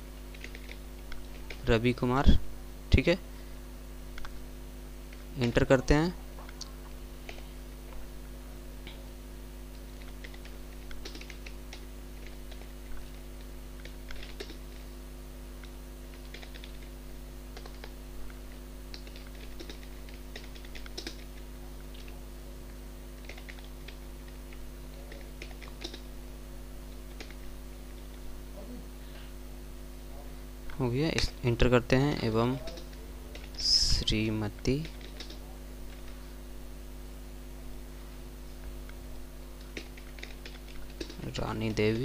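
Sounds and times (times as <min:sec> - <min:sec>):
low electrical hum: 0:00.0 - 0:42.0
computer keyboard typing: 0:00.3 - 0:01.7, 0:04.1 - 0:04.4, 0:09.9 - 0:13.0, 0:13.8 - 0:14.6, 0:15.6 - 0:22.2, 0:23.2 - 0:26.1, 0:27.1 - 0:27.5, 0:32.5 - 0:33.7, 0:34.5 - 0:36.2, 0:39.6 - 0:41.3.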